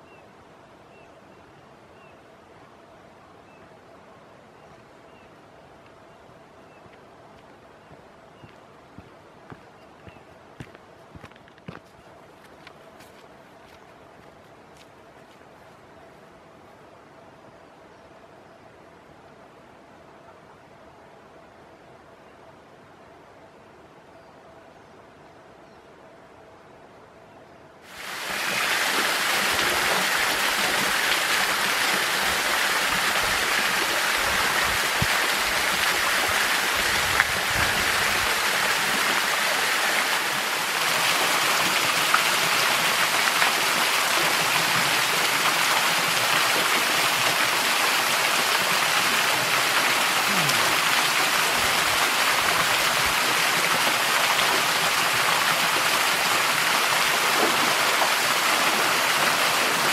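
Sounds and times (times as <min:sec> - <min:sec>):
waterfall splashing into pool: 0:27.9 - 0:59.9.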